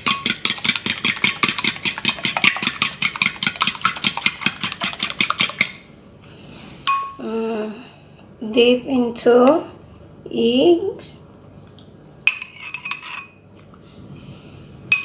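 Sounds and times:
fork beating eggs in a bowl: 0.0 - 5.9
fork tapping bowl ringing: 6.9 - 7.2.

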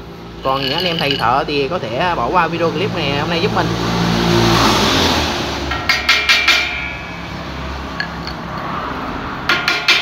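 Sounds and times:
hammer tapping steel frame: 5.7 - 8.6, 9.4 - 10.0.

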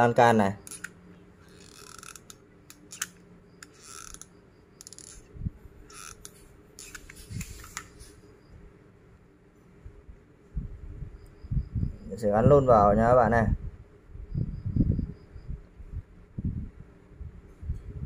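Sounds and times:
quiet handling clicks and scratches: 0.4 - 8.2.

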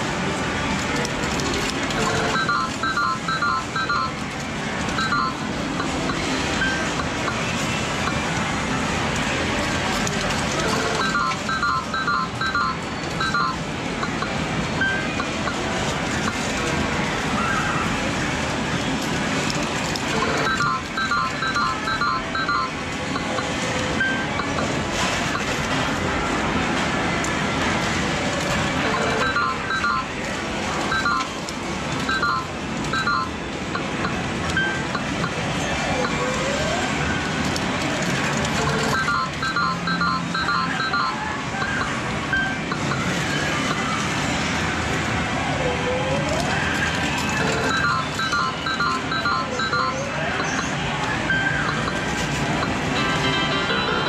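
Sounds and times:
electronic machine beeps: 2.0 - 4.3, 4.9 - 8.3, 10.6 - 16.5, 20.1 - 25.6, 28.8 - 30.2, 30.8 - 31.4, 32.0 - 36.9, 38.6 - 44.0, 47.4 - 54.0
arcade din: 46.4 - 54.0.

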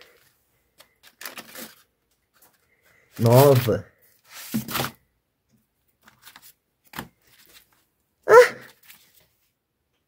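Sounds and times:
old paper rustling: 0.0 - 5.0, 6.0 - 7.9, 8.5 - 9.5.

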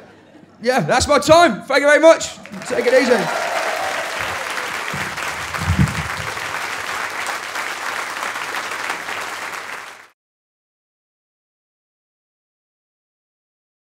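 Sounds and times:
audience applauding: 2.2 - 10.1.

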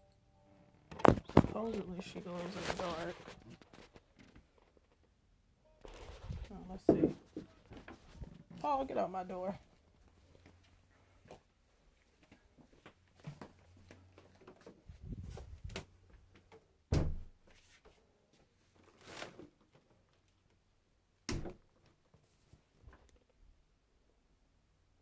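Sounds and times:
soft rustling: 1.0 - 5.2, 5.8 - 8.8, 9.5 - 16.4
knocks and thuds in room: 16.9 - 17.4, 21.3 - 21.7.

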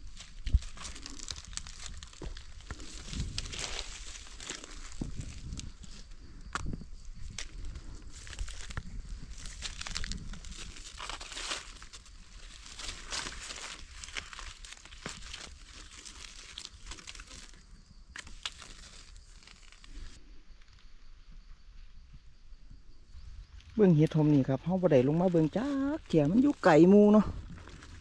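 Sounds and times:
dry leaves rustling and crackling: 0.0 - 6.1, 7.2 - 20.2, 24.8 - 28.0.

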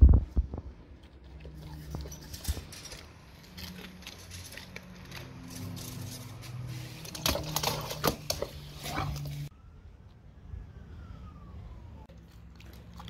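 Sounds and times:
dog claws clicking on stone tiles: 1.1 - 6.0.

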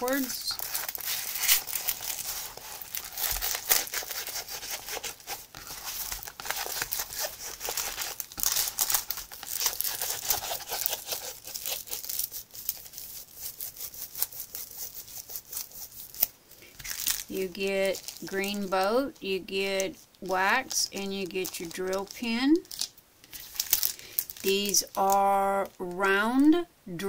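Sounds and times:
canvas and paper crinkling: 0.0 - 25.9.

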